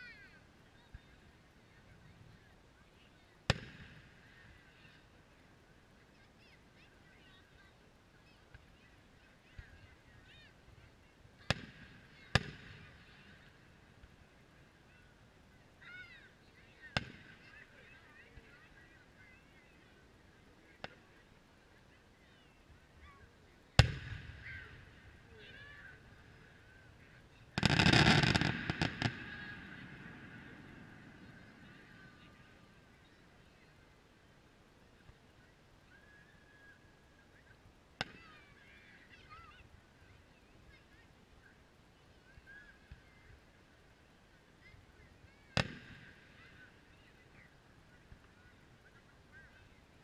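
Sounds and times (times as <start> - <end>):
faint pop: 3.5 - 3.9, 45.6 - 46.0.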